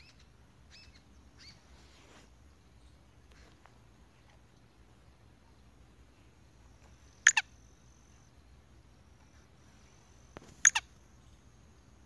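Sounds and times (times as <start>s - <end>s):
bird harsh double calls: 7.2s - 7.6s, 10.6s - 10.9s.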